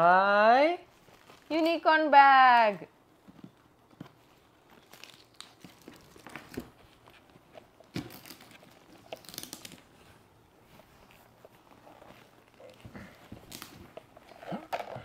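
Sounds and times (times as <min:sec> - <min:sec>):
wrapping paper crinkling: 0:00.9 - 0:01.8, 0:04.1 - 0:15.0.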